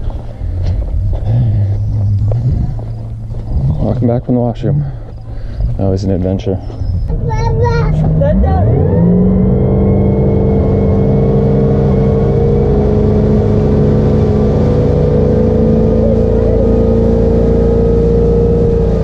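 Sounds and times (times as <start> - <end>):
boat engine running at high speed: 7.0 - 19.0
water rushing from wake: 9.7 - 19.0.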